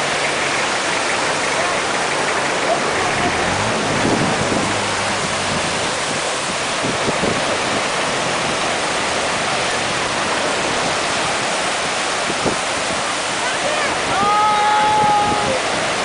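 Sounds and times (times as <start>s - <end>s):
stream rushing over boulders: 0.0s - 16.0s.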